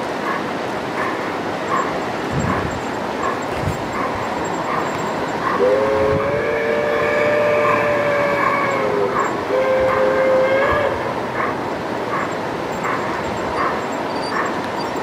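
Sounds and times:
model trains running: 0.0 - 15.0
model train two-tone horn: 5.6 - 11.2.

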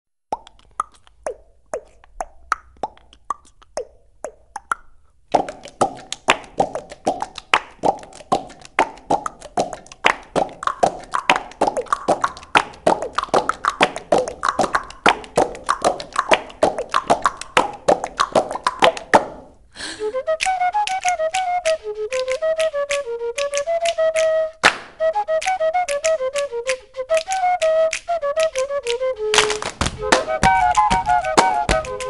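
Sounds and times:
pitched percussion strikes: 29.5 - 32.0.

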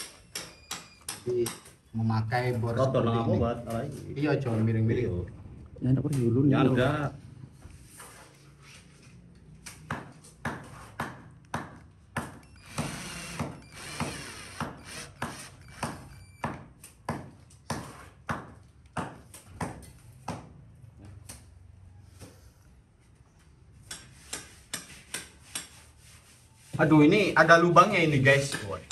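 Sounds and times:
cordless drill motor: 12.4 - 16.2.

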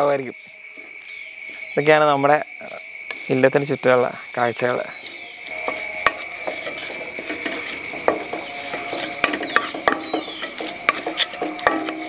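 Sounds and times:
high insect chirring: 0.0 - 12.0
wooden spatula scraping steel pan: 5.5 - 12.0.

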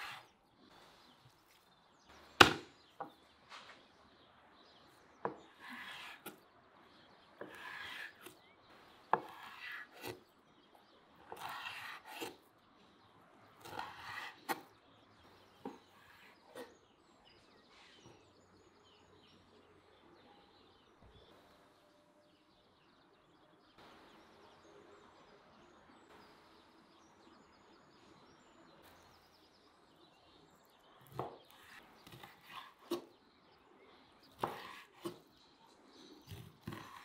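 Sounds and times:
chopping knocks on wood: 2.4 - 3.2.

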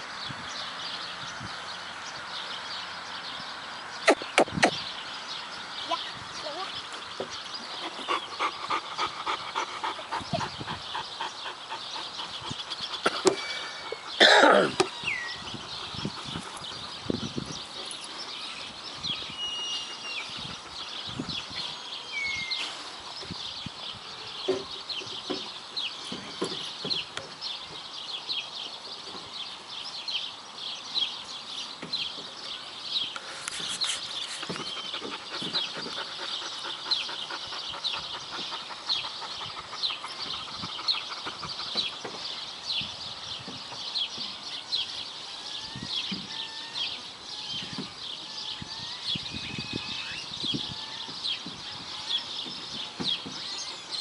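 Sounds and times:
small birds chirping: 0.0 - 54.0
whistled bird notes: 19.1 - 20.4, 22.1 - 22.8, 48.5 - 51.1.

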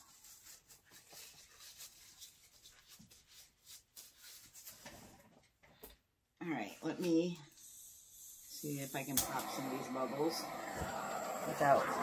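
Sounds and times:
faint rustling and scraping: 0.0 - 5.8.

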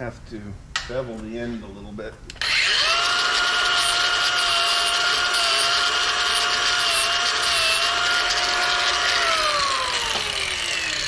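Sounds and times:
angle grinder whining: 2.3 - 11.0.

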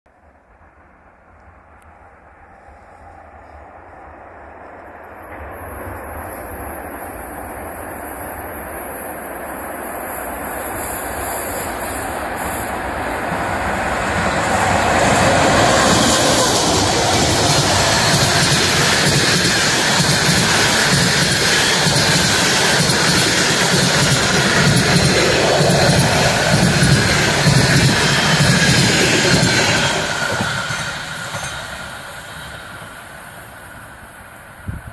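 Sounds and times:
train rail rumble: 0.2 - 34.9.

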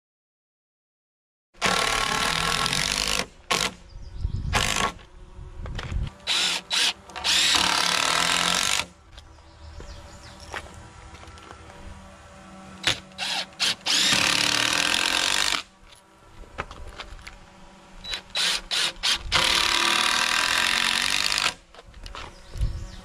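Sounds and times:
cordless drill running into timber: 1.6 - 3.9, 4.5 - 9.3, 12.8 - 22.9.

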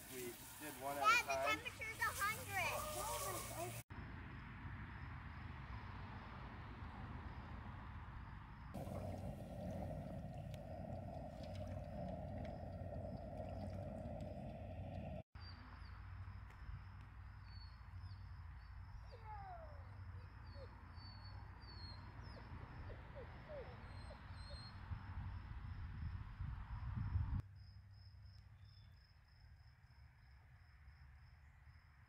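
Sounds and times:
crickets chirring: 8.6 - 15.2.

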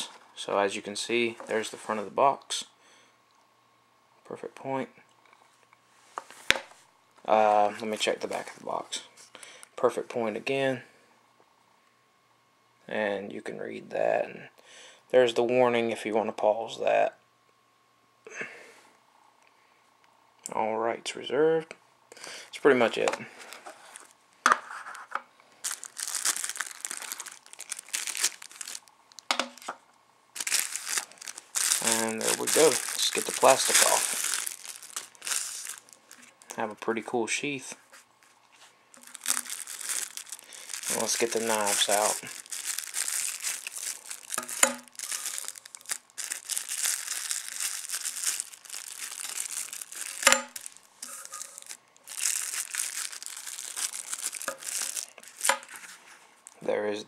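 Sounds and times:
plastic wrapping crinkling: 7.6 - 8.9, 22.8 - 29.8, 30.4 - 36.6, 38.0 - 56.6.

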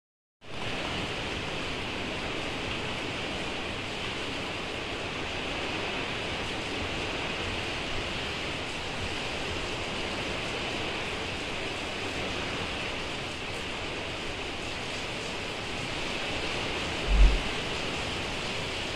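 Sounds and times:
heavy rain pouring: 11.9 - 18.9.

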